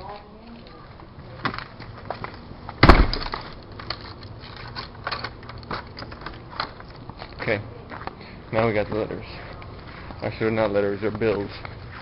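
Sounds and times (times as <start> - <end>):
loud bang: 2.8 - 3.4.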